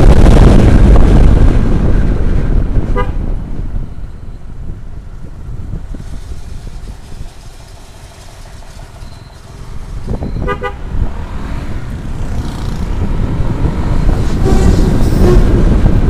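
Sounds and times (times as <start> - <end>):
wind noise on microphone: 0.0 - 16.0
motorcycle engine: 4.9 - 16.0.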